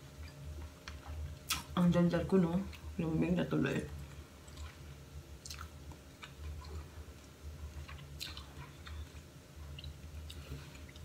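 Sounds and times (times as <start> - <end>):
low steady hum: 0.0 - 11.0
person chewing food: 4.0 - 11.0.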